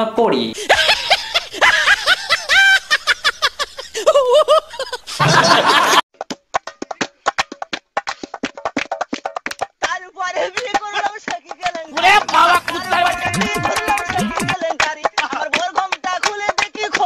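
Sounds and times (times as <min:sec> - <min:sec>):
high-pitched laughter: 0:00.6 - 0:06.0, 0:12.4 - 0:14.6.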